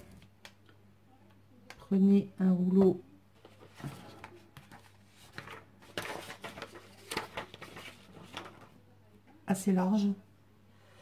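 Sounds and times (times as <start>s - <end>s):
objects rustling on table: 3.4s - 8.8s.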